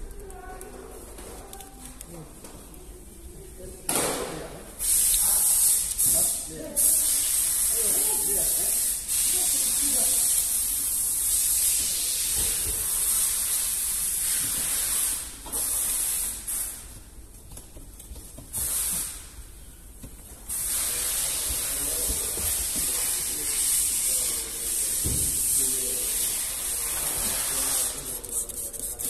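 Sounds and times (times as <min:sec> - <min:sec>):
spray hissing: 0:04.8 - 0:16.9, 0:18.5 - 0:19.3, 0:20.5 - 0:29.0.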